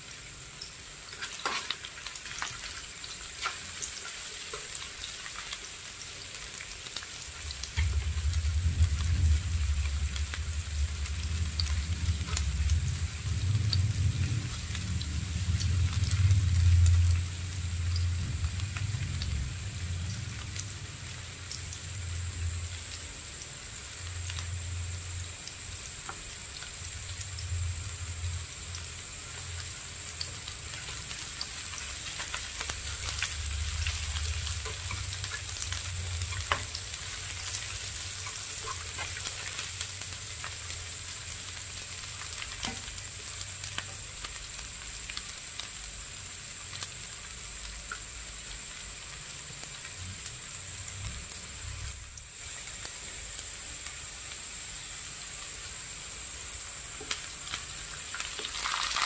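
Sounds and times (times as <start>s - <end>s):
onion sizzling in hot oil: 0.0s - 59.0s.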